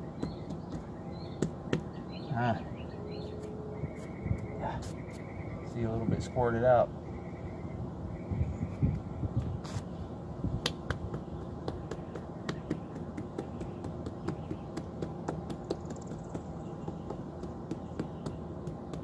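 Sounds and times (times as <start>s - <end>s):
low background hum: 0.0s - 19.0s
fingers tapping stone: 10.6s - 19.0s.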